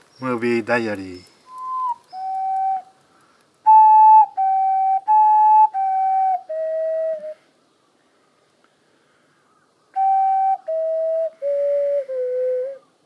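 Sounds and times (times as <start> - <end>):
flute-like tune: 1.5 - 3.0, 3.6 - 7.4, 10.0 - 12.9.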